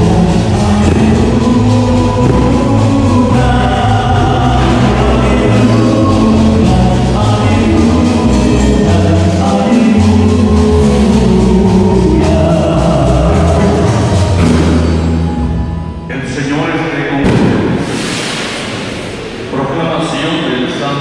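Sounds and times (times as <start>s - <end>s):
choir singing a hymn: 0.0s - 15.2s
deep bass line: 0.0s - 20.5s
amplified band: 0.0s - 20.9s.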